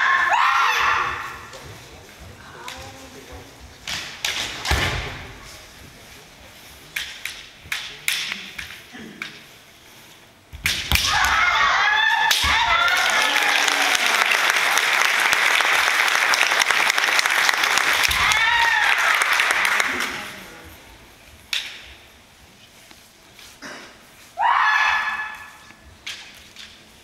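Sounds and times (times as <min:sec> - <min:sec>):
high shouts: 0:00.0 - 0:01.5, 0:11.0 - 0:14.2, 0:17.9 - 0:19.8, 0:24.4 - 0:25.6
bamboo swords clacking: 0:03.8 - 0:05.1, 0:06.8 - 0:09.6, 0:10.5 - 0:11.6, 0:21.4 - 0:22.2, 0:25.6 - 0:27.0.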